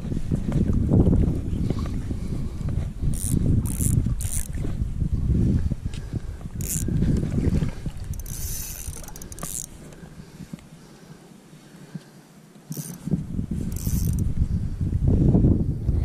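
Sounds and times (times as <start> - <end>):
wind rumbling on microphone: 0.0 - 10.8, 12.7 - 16.0
fishing line hiss: 3.1 - 4.5, 6.6 - 6.9, 8.1 - 10.2, 12.7 - 14.3
fishing reel ratchet clicking: 3.1 - 4.6, 6.6 - 6.9, 8.1 - 10.0, 12.7 - 13.1, 13.7 - 14.3.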